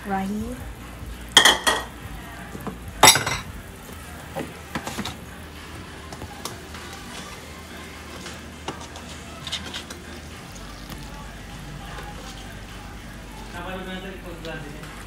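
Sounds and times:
dishes clinking: 1.4 - 2.0, 2.6 - 3.5.

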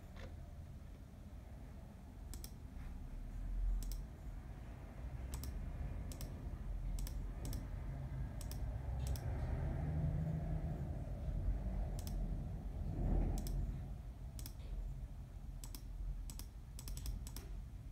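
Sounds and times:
low background rumble: 0.0 - 17.9
computer mouse clicking: 2.3 - 2.6, 3.8 - 4.2, 5.3 - 7.7, 8.3 - 9.4, 11.9 - 12.3, 13.3 - 13.6, 14.3 - 14.8, 15.6 - 17.6.

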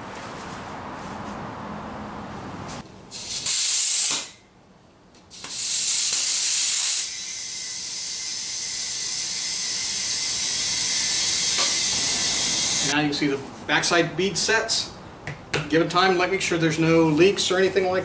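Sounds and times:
compressed air hissing into tire: 3.1 - 4.4, 5.3 - 12.9.

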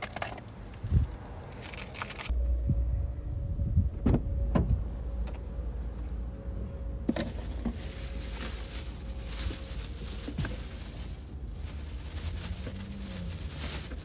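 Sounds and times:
plastic bag rustling: 7.1 - 14.0.

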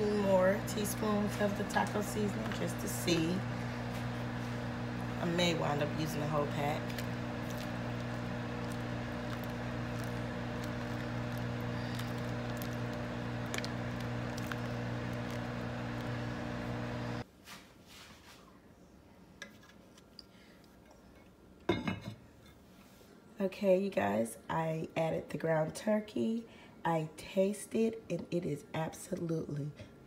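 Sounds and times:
electrical hum: 0.0 - 17.2.

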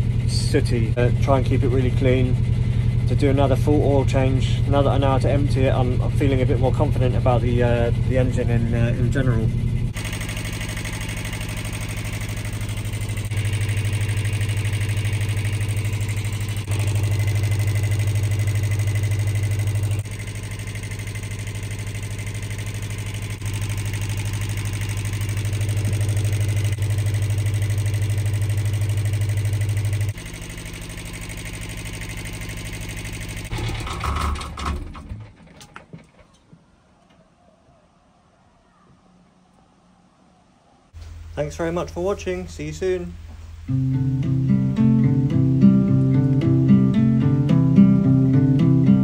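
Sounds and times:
diesel engine idling: 0.0 - 34.2.

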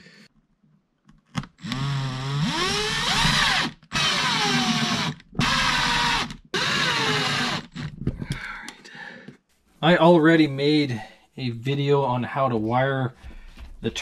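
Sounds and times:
drill driving screws into wood: 1.4 - 7.9.

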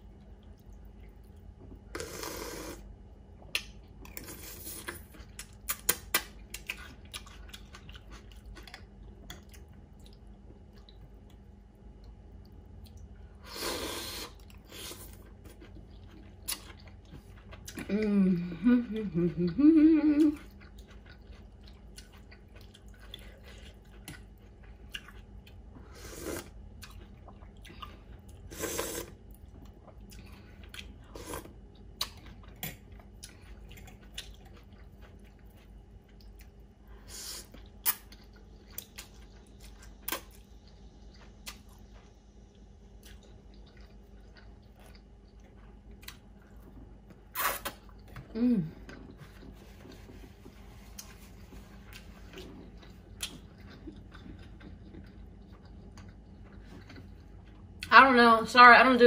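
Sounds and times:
quiet chewing: 0.0 - 57.9
slurping noodles: 1.9 - 2.9, 13.4 - 15.2, 25.9 - 26.5, 28.5 - 29.2.

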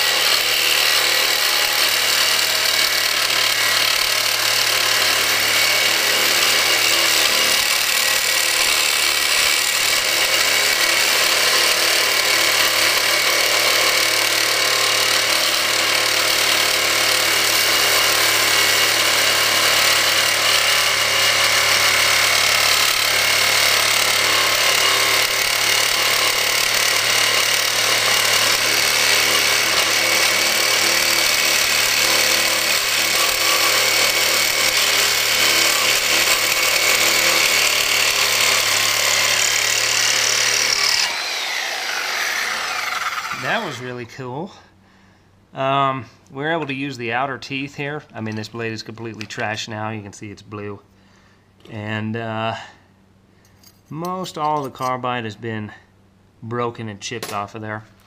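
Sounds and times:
harsh metal-on-metal rasp: 0.0 - 44.0
reciprocating saw cutting metal: 0.0 - 44.0.

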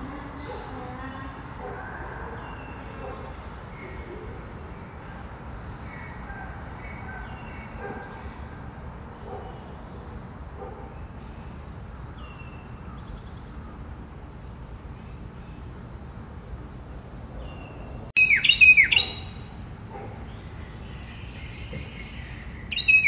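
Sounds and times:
high insect drone: 0.0 - 23.0
bird chirps: 17.4 - 23.0.

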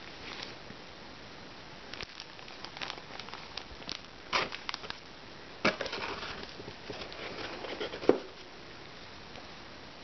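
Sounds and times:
plastic bag crinkling: 1.9 - 5.1, 5.7 - 8.1.

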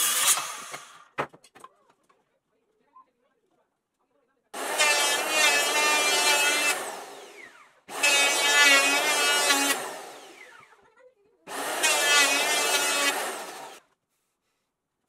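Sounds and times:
power tool running: 4.6 - 10.8, 11.5 - 13.8.

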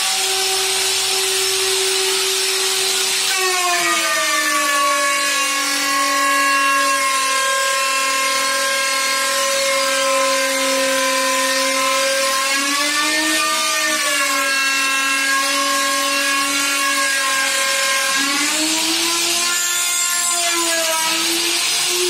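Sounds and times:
router cutting hiss: 0.0 - 6.2, 14.6 - 22.0
electric router whining: 0.0 - 22.0.

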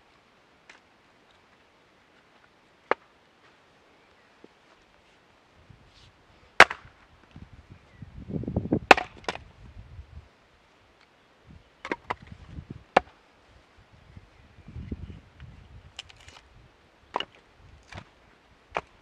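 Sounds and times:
maul splitting firewood: 6.6 - 6.9, 8.8 - 9.5, 12.9 - 13.2, 15.9 - 16.5, 17.1 - 18.1, 18.7 - 19.0.

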